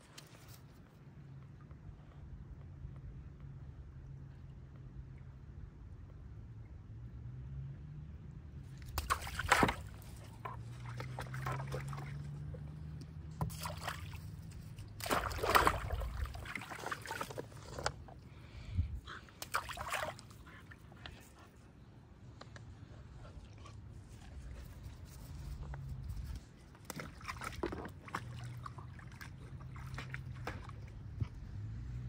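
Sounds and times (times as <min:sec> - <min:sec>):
low steady hum: 0:00.0 - 0:32.0
dogs splashing water: 0:08.6 - 0:21.4, 0:23.3 - 0:32.0.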